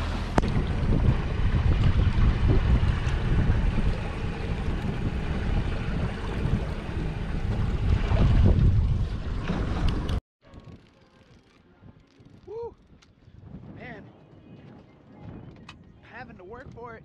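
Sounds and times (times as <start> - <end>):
boat motor: 0.0 - 10.2
water noise: 0.0 - 12.7
wind buffeting microphone: 0.3 - 11.0, 11.7 - 17.0.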